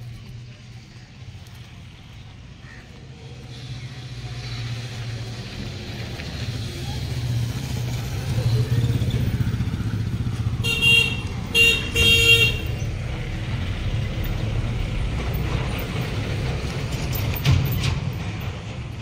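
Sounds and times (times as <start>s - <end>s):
low rumble of road traffic: 0.0s - 19.0s
vehicle horn honking: 10.6s - 12.9s.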